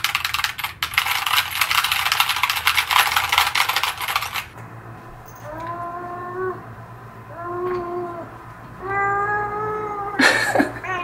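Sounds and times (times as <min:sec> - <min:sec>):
mechanical keyboard typing: 0:00.0 - 0:04.6
cat meowing: 0:07.3 - 0:10.2, 0:10.8 - 0:11.0.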